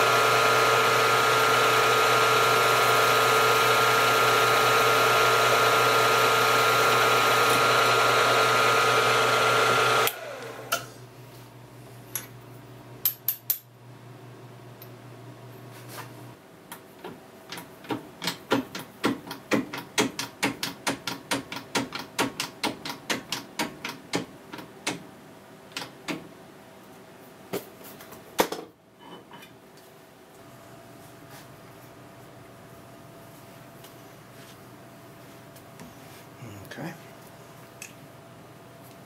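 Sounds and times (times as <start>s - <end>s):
drill press motor humming: 0.0s - 10.9s.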